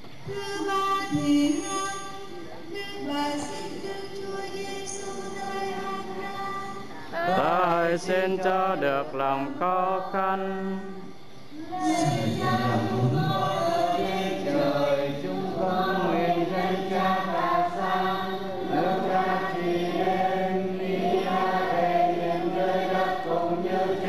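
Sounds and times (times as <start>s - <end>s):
congregation chanting a hymn: 0.7s - 24.0s.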